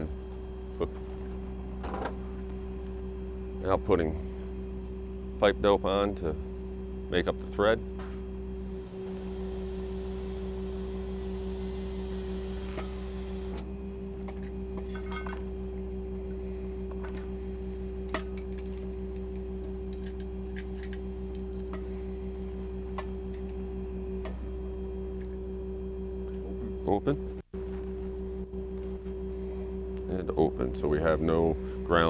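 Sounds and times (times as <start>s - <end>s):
truck engine idling: 0.0s - 7.3s, 7.9s - 20.5s.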